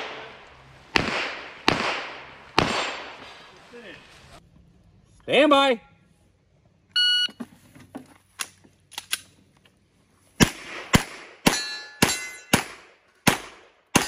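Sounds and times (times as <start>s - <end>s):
pistol shots: 0.0s - 3.3s, 10.4s - 14.0s
steel targets ringing: 11.5s - 12.6s.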